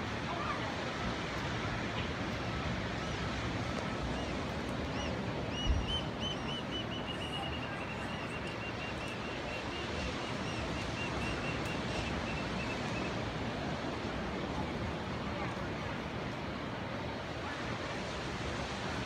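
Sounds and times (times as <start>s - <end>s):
ocean surf rushing: 0.0s - 19.0s.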